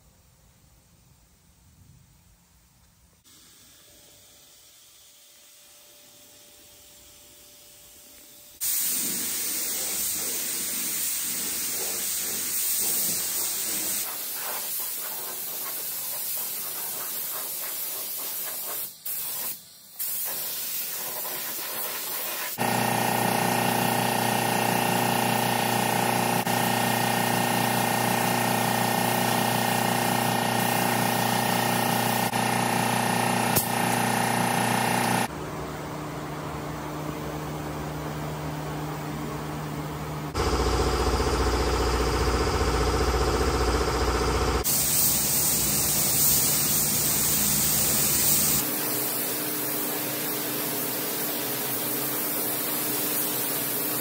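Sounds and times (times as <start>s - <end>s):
paint spray gun hissing: 3.3s - 35.3s, 40.4s - 54.0s
steady machine hum: 22.6s - 44.7s.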